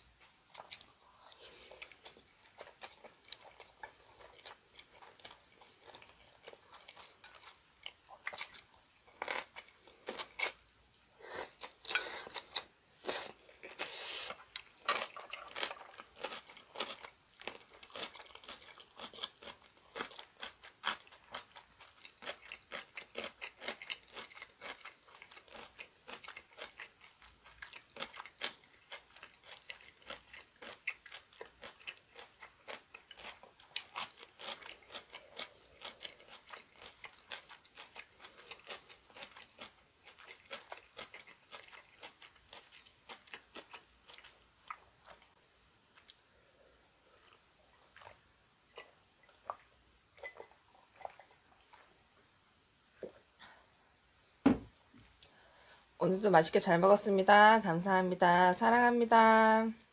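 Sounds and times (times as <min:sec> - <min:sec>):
person chewing food: 0:00.1 - 0:52.3.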